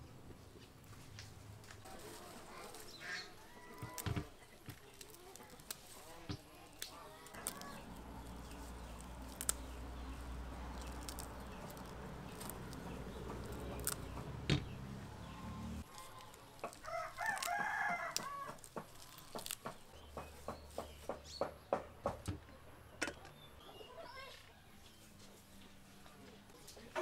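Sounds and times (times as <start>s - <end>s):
herb leaves rustling in colander: 0.8s - 21.1s
rooster crowing: 16.8s - 18.6s.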